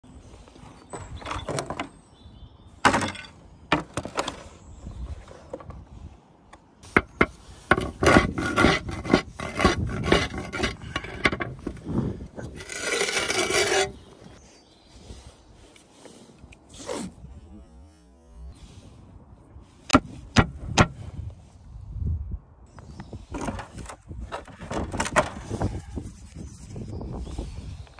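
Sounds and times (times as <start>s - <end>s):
roof tiles scraping: 6.8s - 14.4s.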